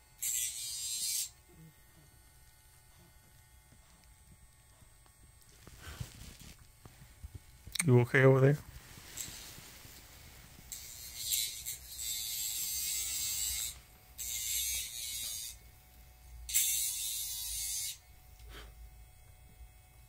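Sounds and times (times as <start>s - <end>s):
nail grinder buzzing: 0.0s - 4.0s, 10.5s - 18.7s.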